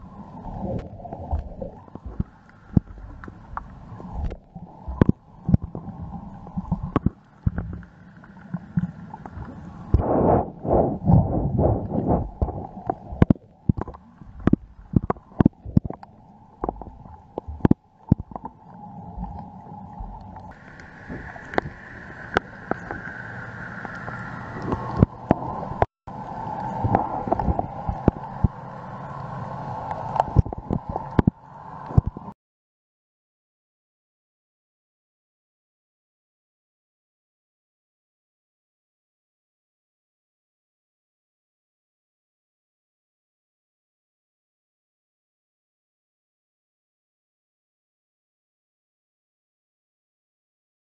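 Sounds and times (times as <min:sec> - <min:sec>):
constant hum: 0:00.0 - 0:32.4
pulsing underwater noise: 0:00.0 - 0:32.4
underwater clicks and knocks: 0:00.7 - 0:07.9, 0:11.1 - 0:23.2, 0:23.8 - 0:25.9, 0:26.7 - 0:28.6, 0:29.9 - 0:32.3.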